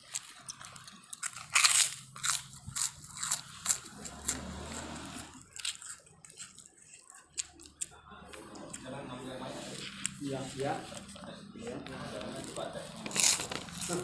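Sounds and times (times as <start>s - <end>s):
person biting a cracker: 0.0s - 8.9s, 12.2s - 14.0s
crunchy chewing: 0.0s - 14.0s.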